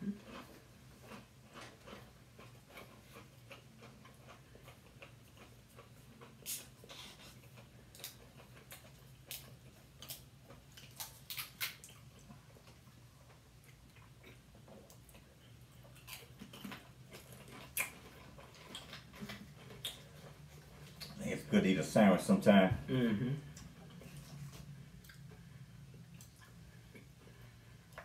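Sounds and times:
faint low hum: 0.0 - 28.0
mouth-close chewing: 0.2 - 21.2.

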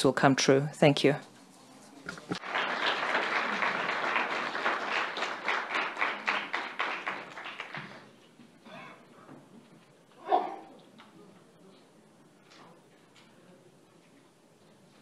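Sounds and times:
audience applauding: 2.3 - 8.2.

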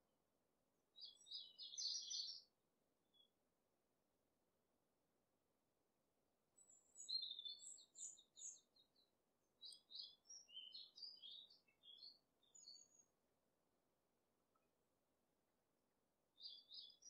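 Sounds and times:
small bird chirping: 1.0 - 2.5, 6.6 - 13.1, 16.4 - 17.0.

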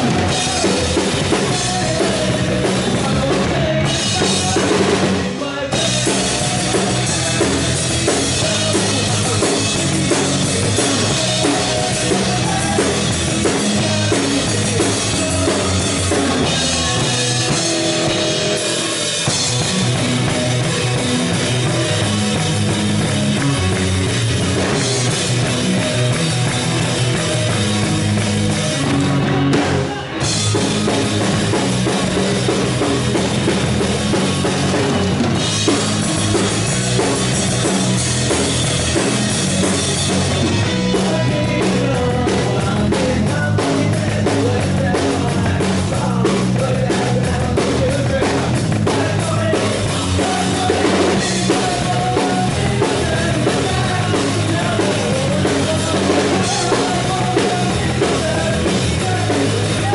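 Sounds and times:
drums and cymbals: 0.0 - 59.9
live rock band: 0.0 - 59.9.

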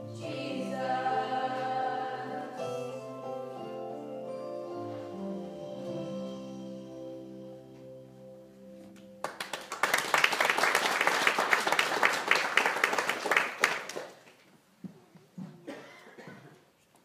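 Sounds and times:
closing chord of music: 0.0 - 9.2
audience applause: 9.2 - 14.4.

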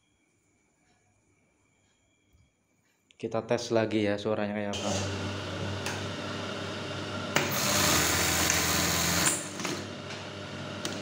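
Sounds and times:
sewing machine stitching: 4.8 - 6.1, 7.3 - 11.0
sewing machine motor hum: 4.8 - 11.0.

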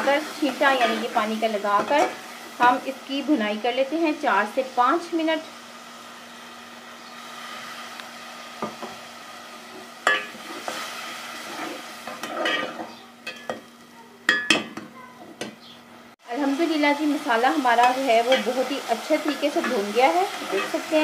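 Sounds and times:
masala sizzling in ghee: 0.0 - 14.4, 15.6 - 21.0
metal spatula scraping pot: 11.4 - 13.5, 17.8 - 21.0.

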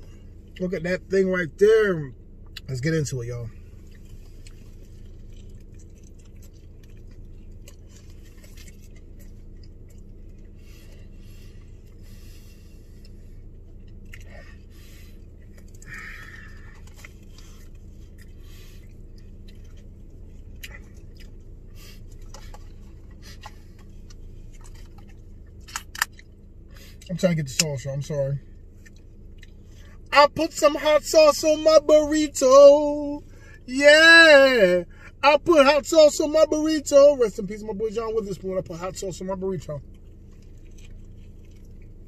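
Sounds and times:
low car cabin hum: 0.0 - 42.0
man chewing wetly: 3.5 - 27.1, 28.4 - 30.1, 39.8 - 42.0.

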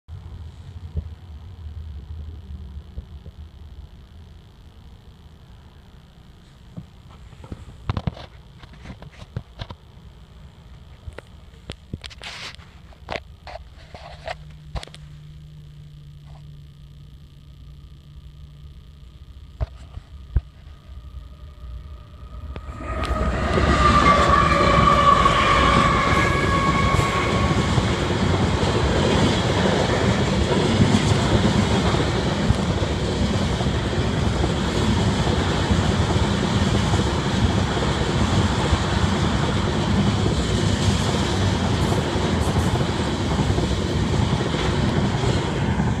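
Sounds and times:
high ringing tone: 13.1 - 30.2
train wheels rumbling on rails: 21.9 - 46.0.

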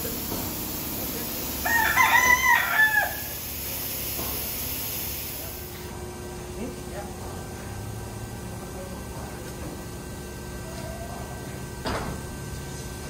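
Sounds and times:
rooster crowing: 1.6 - 3.4.

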